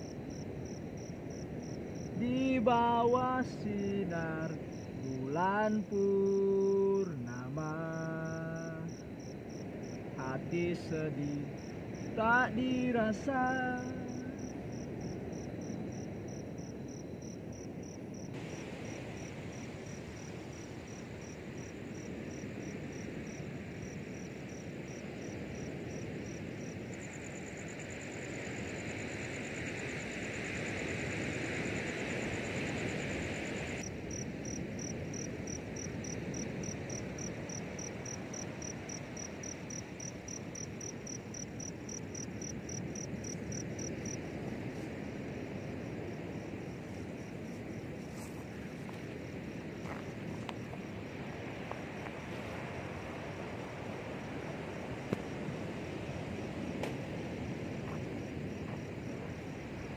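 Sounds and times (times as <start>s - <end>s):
crickets chirping: 0.0s - 59.9s
fast high insect trill: 31.4s - 44.3s.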